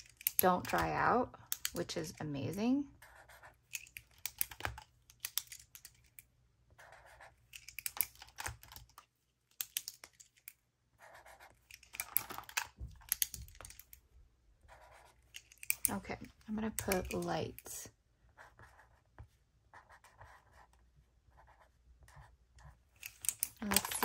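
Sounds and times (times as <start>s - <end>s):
marker tip scratching paper: 3.0s - 4.0s, 6.8s - 7.6s, 11.0s - 11.9s, 14.7s - 15.4s, 18.3s - 22.8s.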